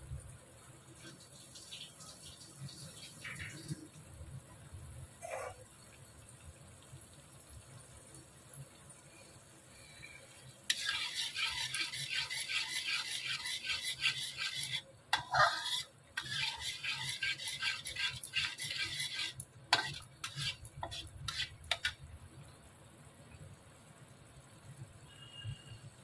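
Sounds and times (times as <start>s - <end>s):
spoon scraping metal pan: 10.7s - 22.0s.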